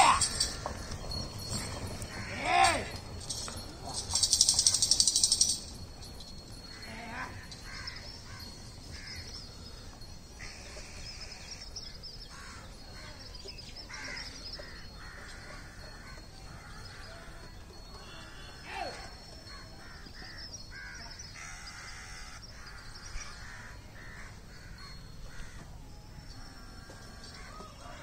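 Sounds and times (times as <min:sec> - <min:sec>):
crows cawing: 0:00.0 - 0:03.6, 0:06.6 - 0:11.7, 0:12.3 - 0:13.2, 0:13.9 - 0:25.7, 0:26.5 - 0:28.0.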